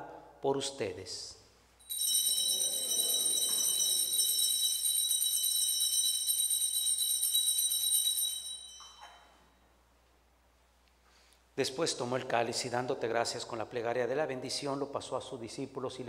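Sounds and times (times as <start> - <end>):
small bells jingling: 1.8 - 9.6.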